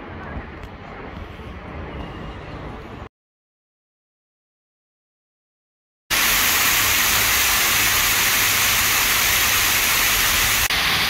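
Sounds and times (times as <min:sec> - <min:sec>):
water rushing down cascade fountain: 0:06.1 - 0:11.0.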